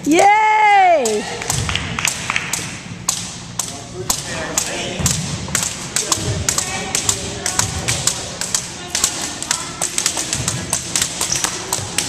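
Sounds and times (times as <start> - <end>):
murmur of voices: 3.8 - 12.0.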